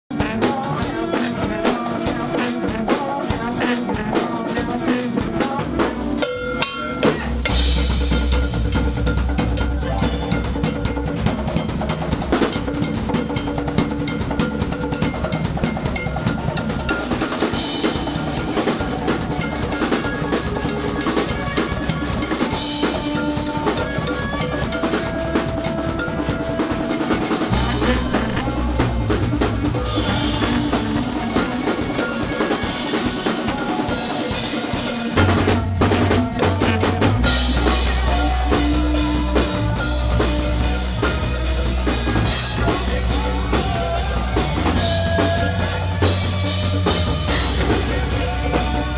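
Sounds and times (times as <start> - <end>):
drum kit with snare hits: 0.1 - 48.9
electric guitar: 0.1 - 48.9
keyboards: 0.1 - 48.9
heavy low bass: 27.3 - 31.7, 35.2 - 48.9.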